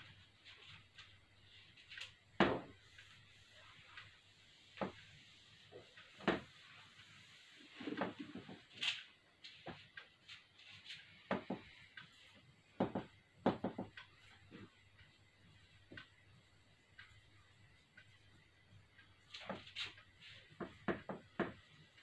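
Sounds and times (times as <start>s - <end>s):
knocks on whiteboard: 12.8s - 13.9s.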